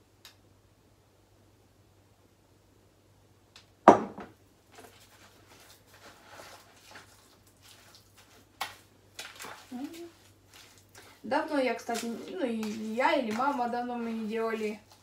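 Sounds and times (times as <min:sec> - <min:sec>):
small knock: 0:03.9 - 0:04.3
spoon scraping plastic bowl: 0:04.8 - 0:11.0, 0:11.9 - 0:15.0.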